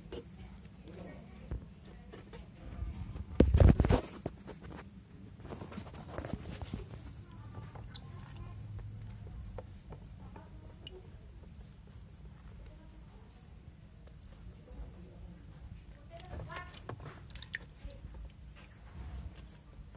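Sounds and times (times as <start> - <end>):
low steady hum: 0.0 - 19.9
water splashing and dripping: 7.6 - 11.8, 16.1 - 18.4.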